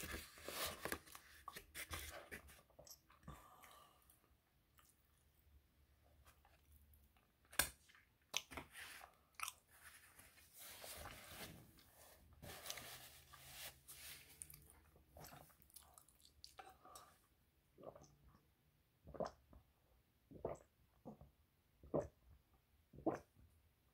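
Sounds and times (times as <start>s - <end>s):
person chewing food: 8.2s - 9.7s, 14.4s - 17.1s.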